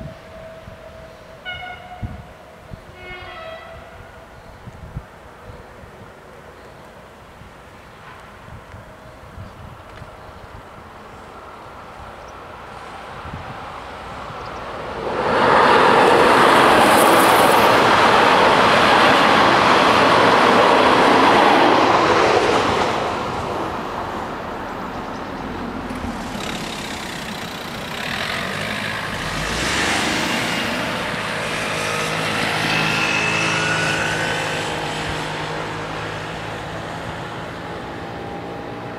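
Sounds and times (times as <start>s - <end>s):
train passing over level crossing: 12.9s - 25.1s
car engine moving off: 25.7s - 37.3s
motorcycle engine moving off: 25.9s - 36.4s.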